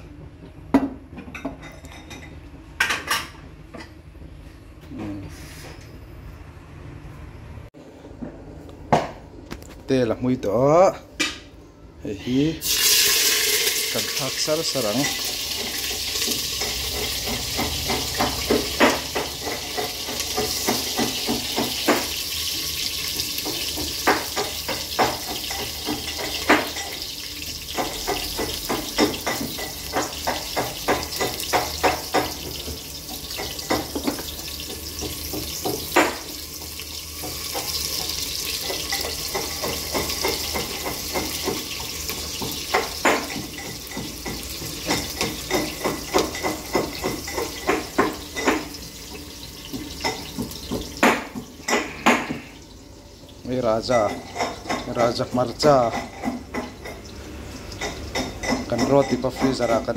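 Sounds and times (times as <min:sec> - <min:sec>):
steady cooking hiss: 0:12.2 - 0:59.9
utensil scraping cooking pot: 0:14.8 - 0:27.1.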